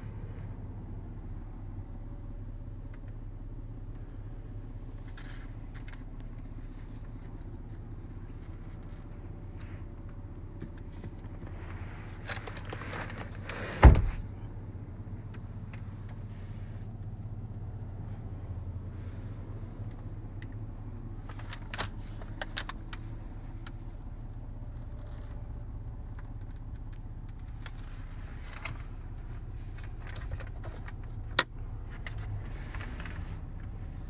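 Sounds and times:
steady low hum: 0.0s - 34.0s
rustling: 10.6s - 14.4s, 24.7s - 34.0s
car door thud: 13.6s - 14.4s.

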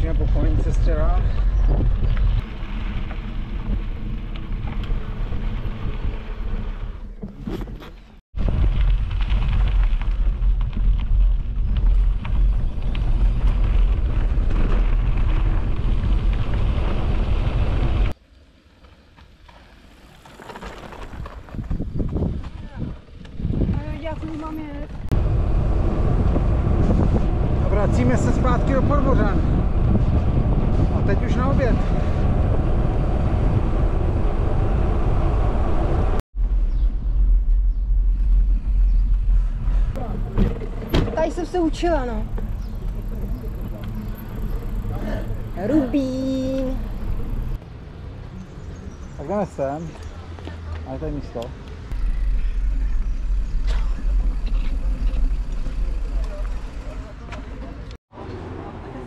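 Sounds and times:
wind buffeting microphone: 0.0s - 6.7s, 21.0s - 47.6s.

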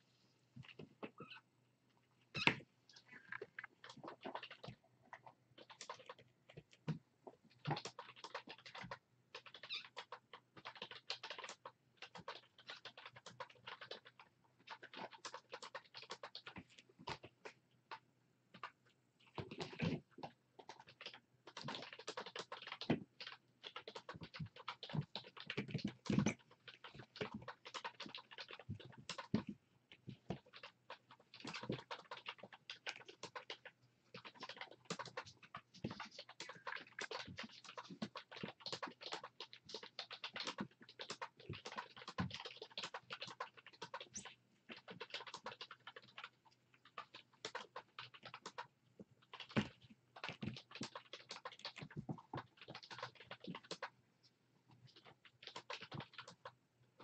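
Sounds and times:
typing on computer keyboard: 5.6s - 6.8s, 7.6s - 17.2s, 20.6s - 29.5s, 30.3s - 53.9s, 54.9s - 56.6s.

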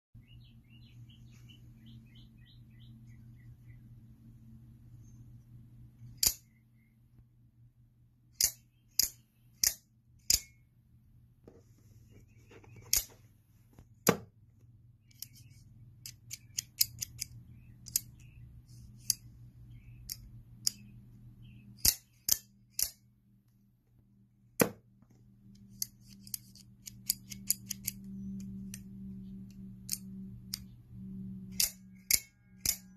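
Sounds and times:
knife spring mechanism snapping: 6.1s - 6.6s, 8.4s - 10.6s, 21.8s - 23.0s, 25.7s - 28.9s, 31.5s - 32.9s.

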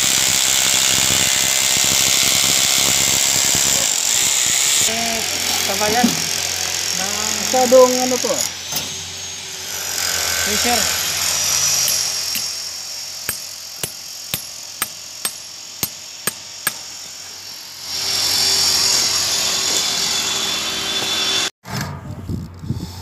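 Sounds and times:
hammer striking steel chisel: 11.8s - 12.6s, 13.3s - 16.9s.

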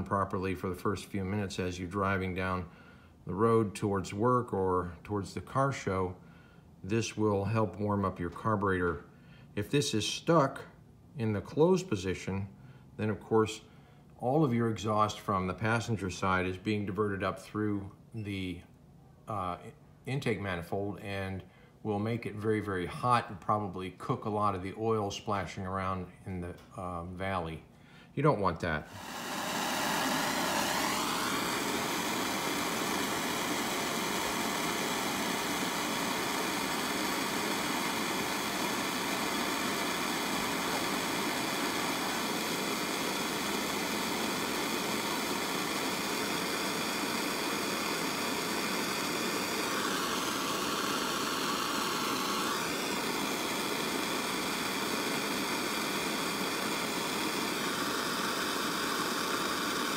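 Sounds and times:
gas torch hissing: 28.8s - 59.9s.

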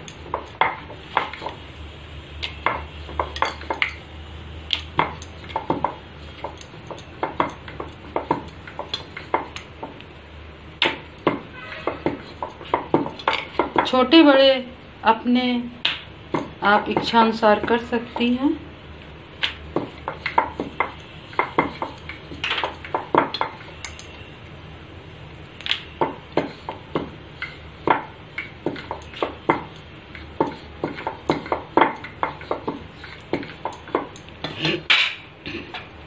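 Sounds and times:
bangles clinking: 3.2s - 5.6s, 19.9s - 24.3s.

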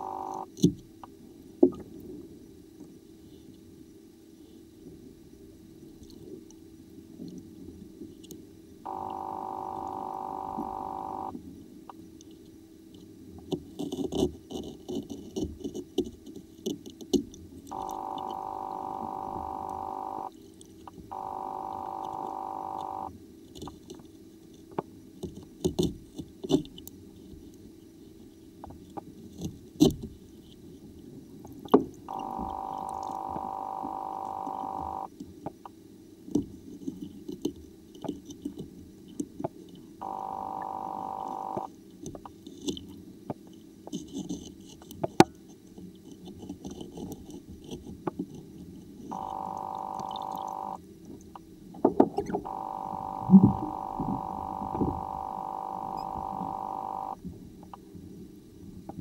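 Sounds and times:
steady hum: 0.0s - 0.5s, 8.9s - 11.3s, 17.7s - 20.3s, 21.1s - 23.1s, 32.1s - 35.1s, 40.0s - 41.7s, 49.1s - 50.8s, 52.4s - 57.2s.

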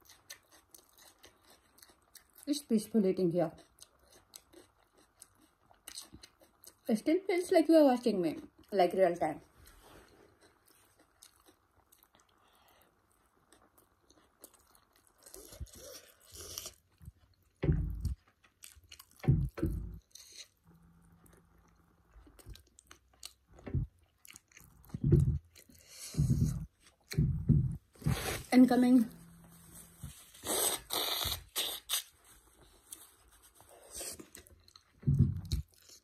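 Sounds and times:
chewing and biting: 0.0s - 2.5s, 3.5s - 6.9s, 10.0s - 28.4s, 33.8s - 36.0s.

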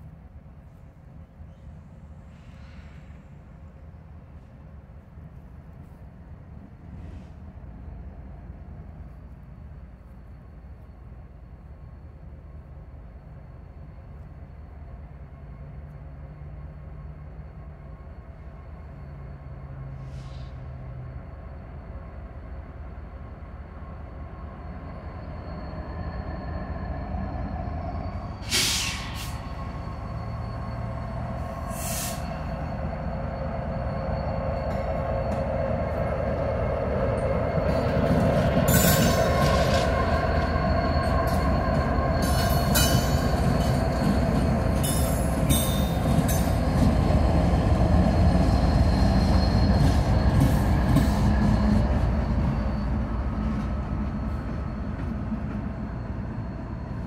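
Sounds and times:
diesel locomotive engine drone: 0.0s - 57.0s
clicks and knocks of passing train: 28.1s - 57.0s.

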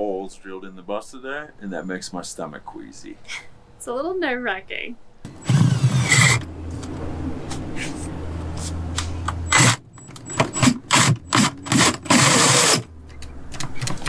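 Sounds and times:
drill hole saw grinding: 5.4s - 6.5s, 9.4s - 12.9s.

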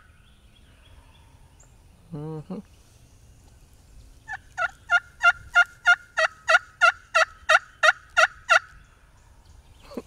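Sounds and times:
wild turkey yelping: 4.3s - 8.7s.

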